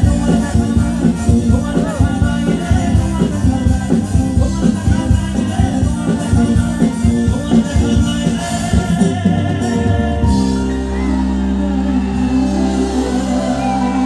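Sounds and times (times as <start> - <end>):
drums beating quickly: 0.0 - 10.9
live band music: 0.0 - 14.0
singing: 0.0 - 14.0.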